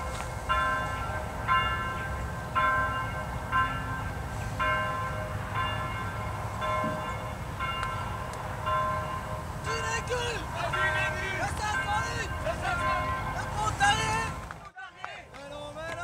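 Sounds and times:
church bells ringing: 0.0s - 14.7s.

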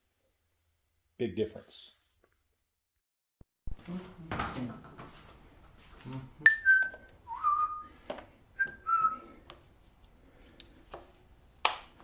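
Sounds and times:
person whistling: 6.4s - 8.0s, 8.6s - 9.4s.

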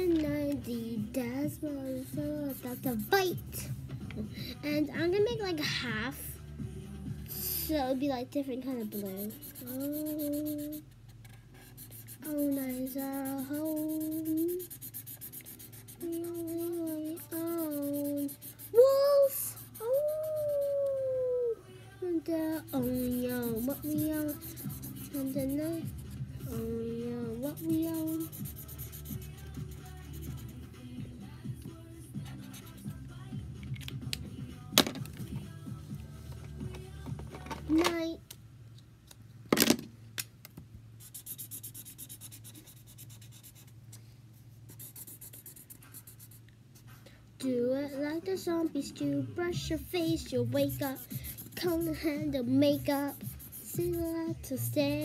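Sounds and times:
marker scribbling on paper: 1.9s - 3.6s, 8.7s - 20.8s, 22.4s - 30.6s, 32.2s - 33.0s, 41.0s - 43.7s, 44.7s - 46.9s, 49.8s - 55.0s.

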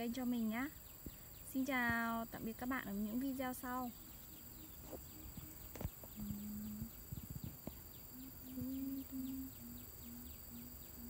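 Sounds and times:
faint high chirp: 2.8s - 11.0s
low hum: 3.9s - 11.0s.

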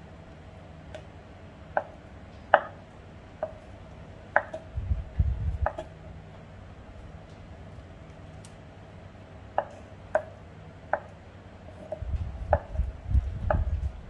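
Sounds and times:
dull low thumps: 4.6s - 5.9s, 11.9s - 14.0s.

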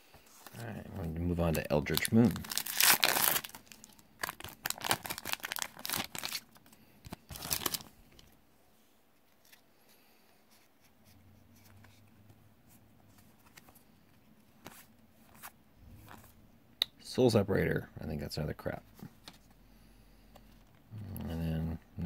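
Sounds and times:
faint rustles of cards: 0.0s - 16.5s, 18.6s - 21.8s
foil wrapper tearing and crinkling: 1.8s - 7.9s.

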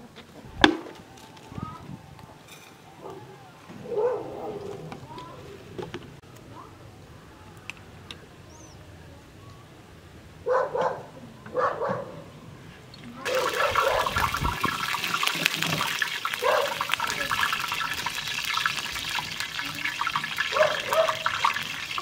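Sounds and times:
hot water pouring into teapot: 13.2s - 22.0s.

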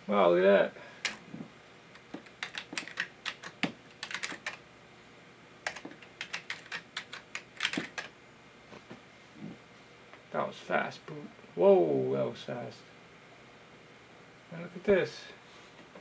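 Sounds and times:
computer keyboard typing: 2.0s - 4.6s, 5.6s - 8.1s.

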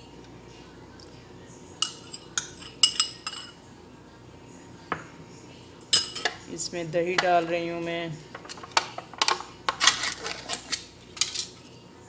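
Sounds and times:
metal spoon clinking on bowl: 1.8s - 3.6s, 5.9s - 6.4s.

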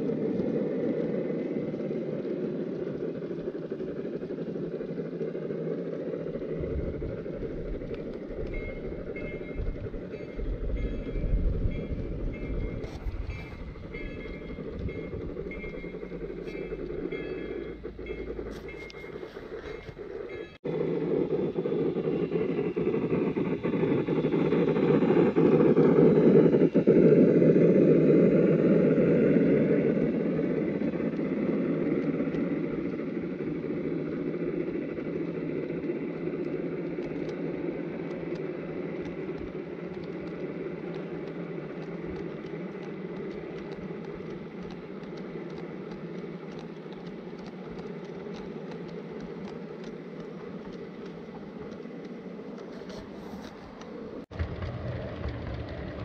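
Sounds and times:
model train motor humming: 0.0s - 56.0s
wheels clicking on track: 0.0s - 56.0s.

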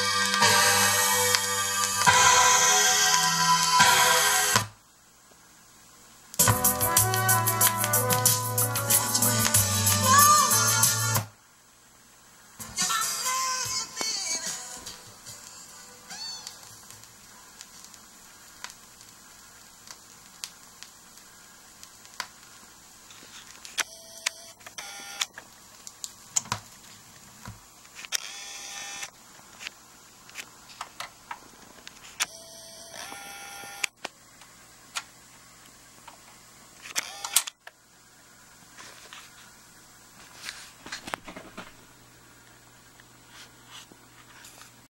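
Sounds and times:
camera zoom motor whirring: 28.0s - 29.1s, 32.9s - 33.9s, 36.9s - 37.6s.

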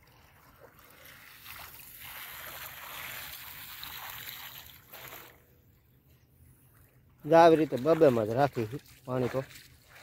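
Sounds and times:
water rushing through channel: 0.0s - 5.5s, 7.2s - 10.0s.

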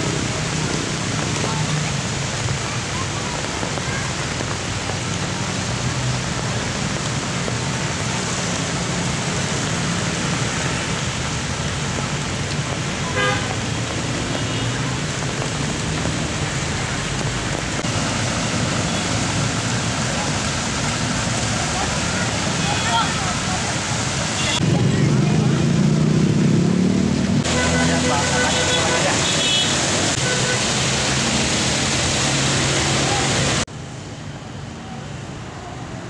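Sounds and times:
heavy rain hissing: 0.0s - 36.0s
road traffic hum: 0.0s - 36.0s
car horn toot: 13.1s - 13.5s, 27.5s - 30.6s.

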